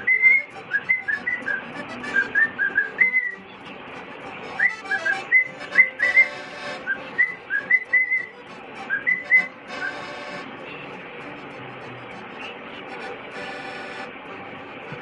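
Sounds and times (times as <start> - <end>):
cockatiel whistling: 0.0 - 3.4, 4.6 - 8.3, 8.9 - 10.0.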